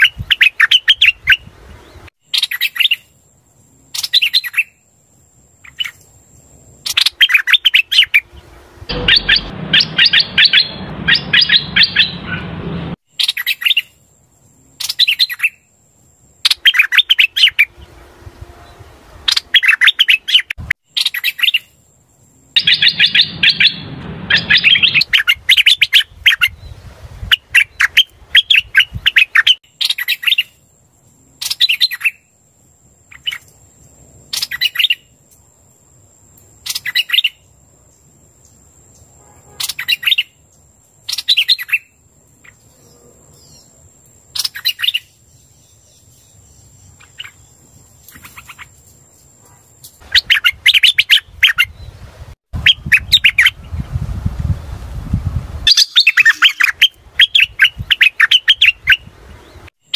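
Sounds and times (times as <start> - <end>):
starling chattering song: 8.9 - 13.0, 22.6 - 25.5, 55.7 - 59.1.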